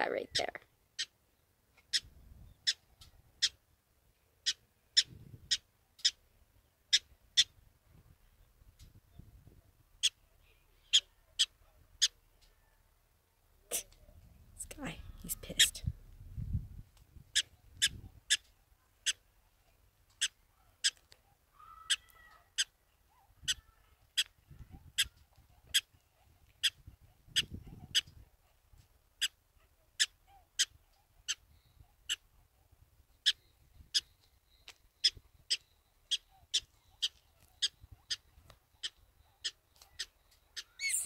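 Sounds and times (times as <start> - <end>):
prairie dog barking: 1.9 - 3.6, 10.0 - 12.2, 17.3 - 19.6, 20.2 - 34.1, 35.0 - 41.0.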